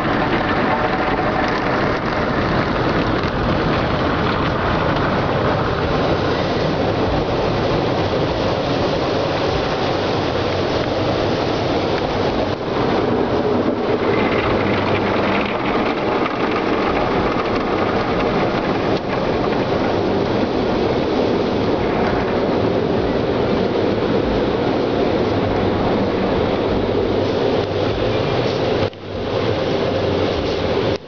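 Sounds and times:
car wash machinery rumbling: 0.0 - 31.0.

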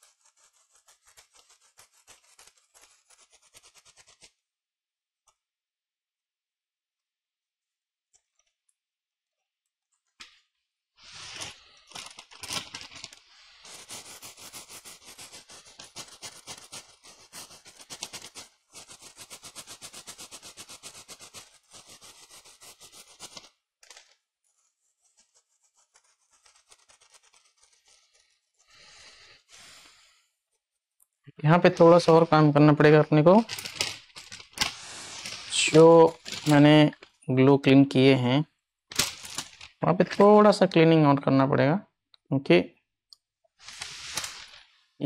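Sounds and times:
rapid scraping on circuit board: 0.0 - 4.4, 11.0 - 30.7, 33.3 - 37.0.

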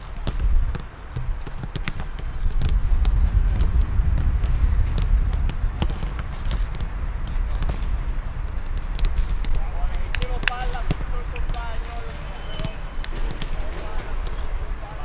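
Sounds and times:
boots kicking footballs: 0.1 - 15.0
low rumble: 2.2 - 14.6.

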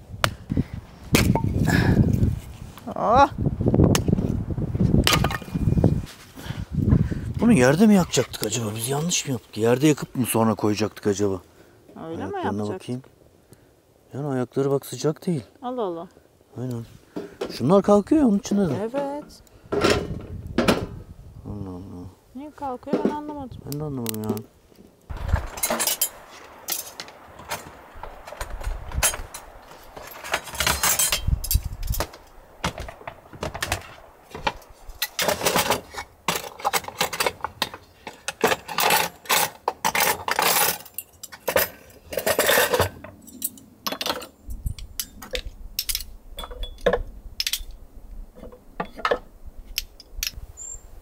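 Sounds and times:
glass jars and wooden boxes clinking: 25.3 - 27.0, 30.0 - 32.0, 35.0 - 47.7.

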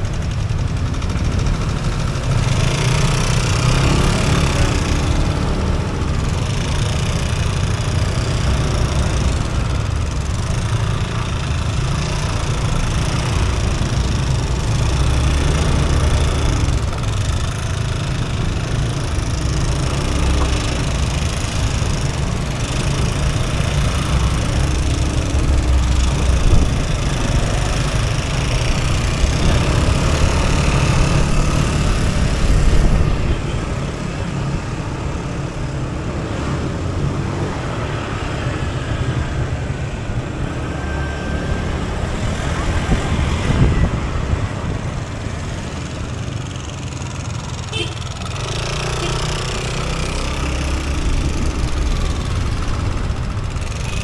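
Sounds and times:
motor scooter engine running: 0.0 - 54.0
road noise: 0.0 - 54.0
wind on microphone: 42.7 - 45.0.

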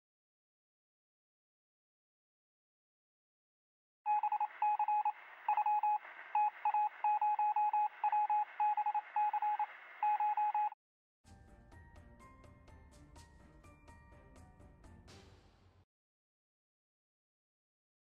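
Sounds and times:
electronic beeping: 4.1 - 10.8.

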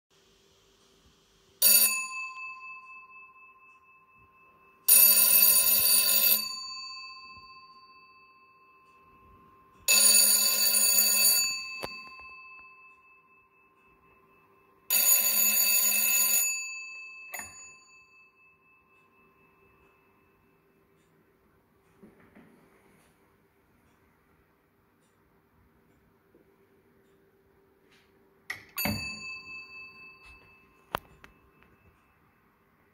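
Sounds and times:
telephone bell ringing: 1.6 - 20.4, 28.7 - 32.1.

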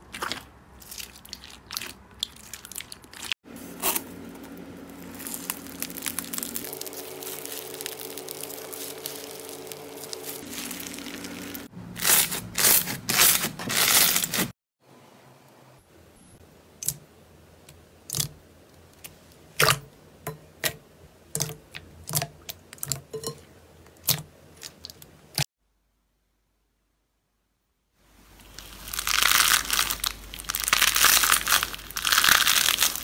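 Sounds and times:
slime crackling and crunching: 0.1 - 14.5, 28.4 - 33.0.

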